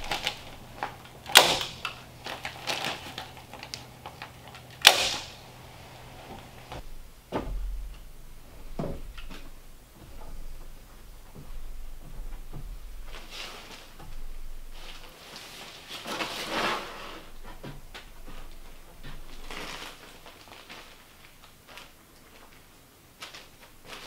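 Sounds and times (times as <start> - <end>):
clicks and knocks on wooden joists: 0.0 - 5.4, 6.3 - 15.1
boots thudding on joists: 6.3 - 15.0.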